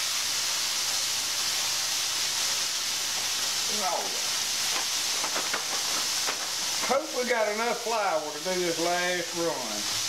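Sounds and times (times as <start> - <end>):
deep-frying sizzle: 0.0 - 10.0.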